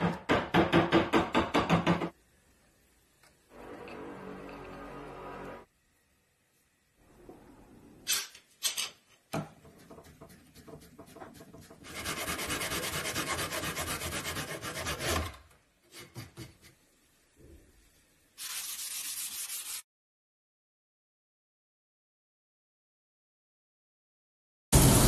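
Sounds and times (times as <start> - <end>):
hand saw cutting wood: 11.8 - 16.5.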